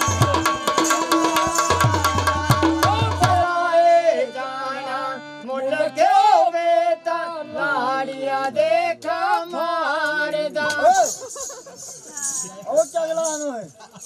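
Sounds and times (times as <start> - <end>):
drumming: 0.0 - 3.4
person singing folk melody: 0.0 - 12.9.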